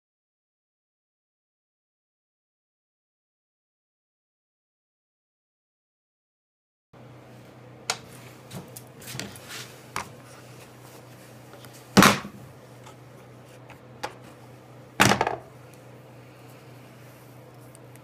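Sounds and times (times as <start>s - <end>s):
faint steady hum: 7.0s - 18.0s
sharp knocks on workbench: 15.0s - 15.4s.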